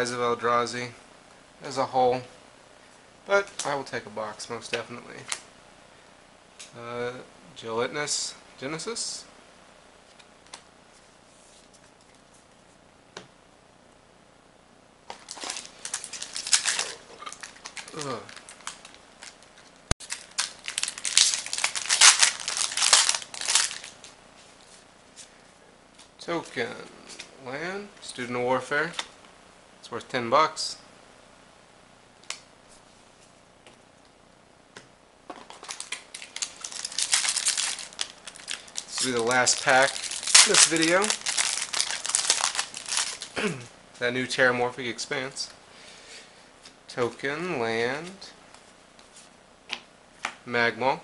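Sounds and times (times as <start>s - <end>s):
foil wrapper crinkling: 15.1s - 24.8s, 35.4s - 43.4s.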